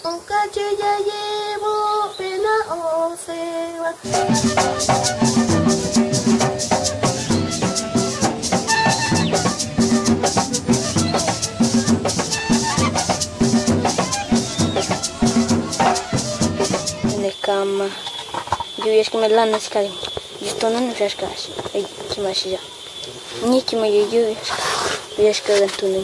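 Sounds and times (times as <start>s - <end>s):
duct flutes playing melody: 4.0s - 18.3s
shaken maraca: 4.0s - 22.4s
drum rhythm: 4.1s - 17.4s.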